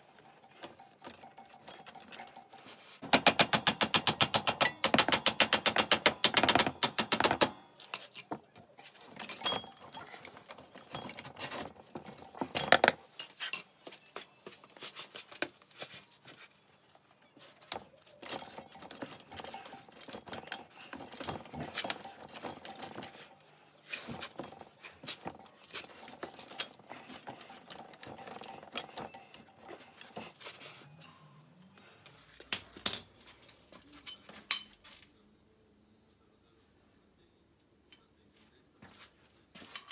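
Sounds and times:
metallic clinks and tool knocks: 0:00.0 - 0:14.6, 0:17.6 - 0:31.4, 0:32.0 - 0:35.0, 0:39.6 - 0:39.9.

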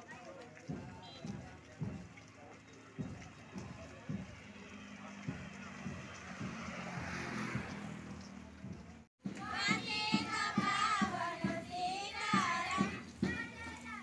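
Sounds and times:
steady beat: 0:03.0 - 0:14.0
children singing in unison: 0:09.3 - 0:14.0.

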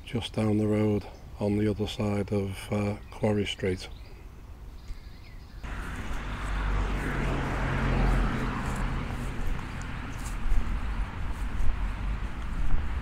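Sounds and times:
car passing: 0:05.6 - 0:13.0.

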